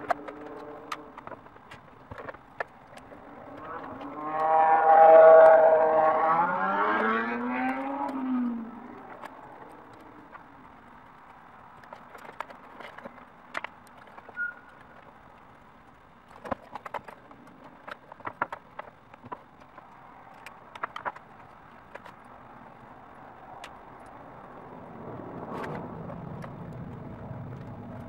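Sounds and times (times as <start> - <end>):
small metal clicks and taps: 7.6 - 22.4.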